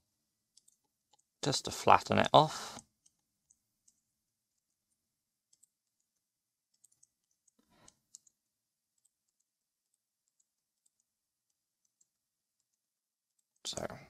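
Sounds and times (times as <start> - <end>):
mouse and keyboard clicks: 0.5 - 1.3, 5.5 - 8.4.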